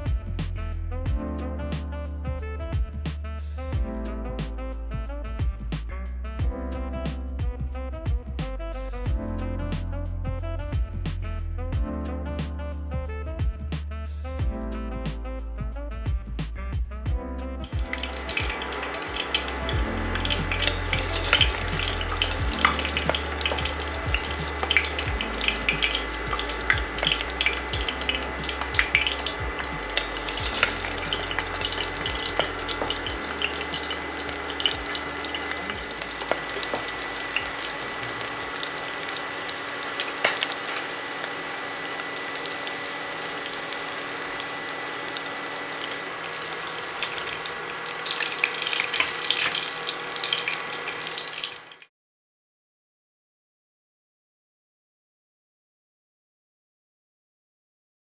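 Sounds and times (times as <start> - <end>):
food deep-frying in hot oil: 17.6 - 51.9.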